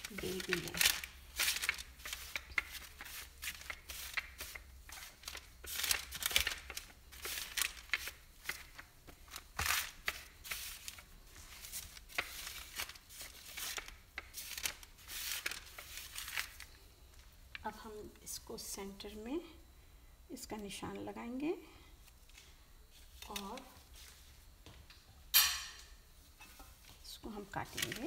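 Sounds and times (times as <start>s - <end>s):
rolling pin on dough and paper: 0.0s - 16.4s
parchment paper crinkling: 0.0s - 17.7s, 23.0s - 24.3s, 26.8s - 28.0s.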